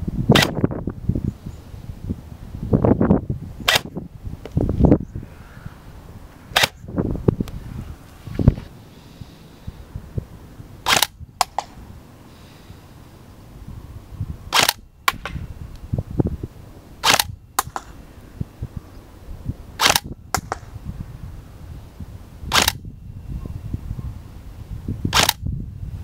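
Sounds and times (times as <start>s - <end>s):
wind buffeting microphone: 0.0s - 26.0s
airsoft rifle shots: 0.3s - 0.7s, 3.6s - 4.0s, 6.5s - 6.8s, 10.8s - 11.8s, 14.5s - 15.5s, 17.0s - 18.0s, 19.8s - 20.8s, 22.5s - 22.8s, 25.1s - 25.4s.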